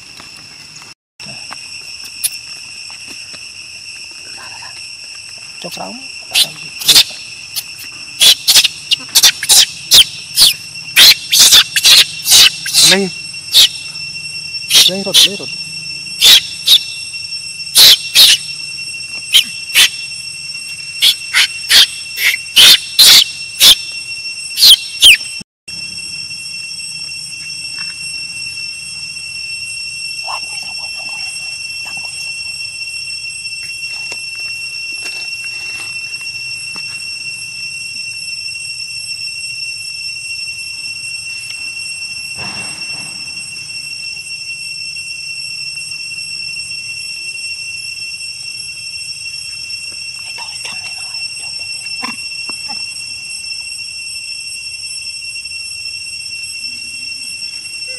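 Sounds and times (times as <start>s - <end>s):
insect chorus: 0.0s - 57.9s
baby monkey squealing: 6.3s - 13.8s, 14.7s - 15.4s, 16.2s - 16.9s, 17.8s - 18.4s, 19.3s - 20.0s, 21.0s - 23.8s, 24.6s - 25.2s.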